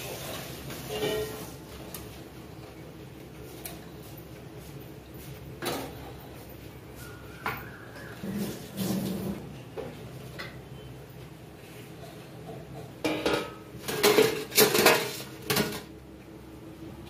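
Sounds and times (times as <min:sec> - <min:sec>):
wire skimmer scraping steel plate: 0:00.0 - 0:01.6.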